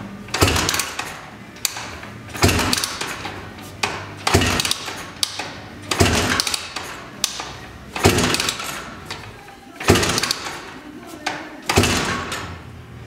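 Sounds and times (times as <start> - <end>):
engine kick-start clatter: 0.3 - 9.0.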